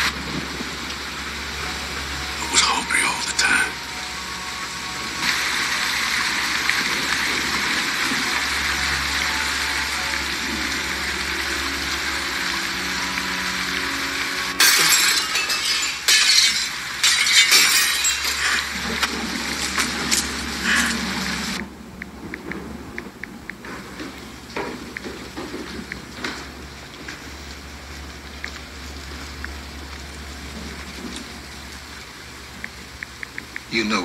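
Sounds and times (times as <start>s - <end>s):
glass shards clinking: 14.6s - 18.9s
glass window smashing: 14.6s - 20.2s.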